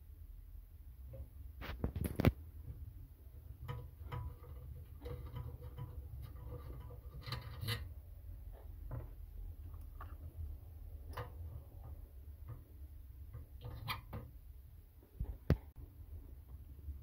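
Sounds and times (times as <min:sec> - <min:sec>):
light metal rubbing: 0:01.1 - 0:14.5.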